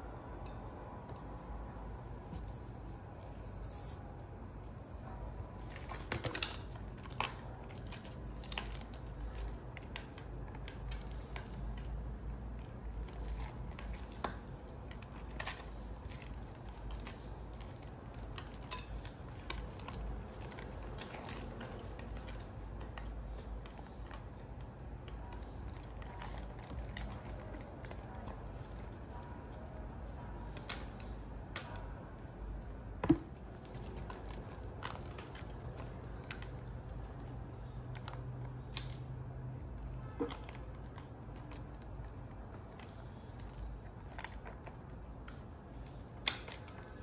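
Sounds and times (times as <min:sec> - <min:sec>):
low steady hum: 0:00.0 - 0:47.0
metal chain clinking: 0:02.0 - 0:24.7, 0:25.6 - 0:30.0, 0:33.6 - 0:37.3.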